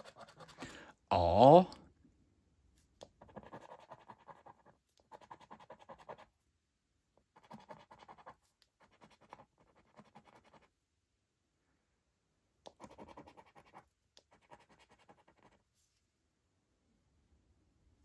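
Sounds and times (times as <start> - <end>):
coin scratching scratchcard: 3.2 - 6.2.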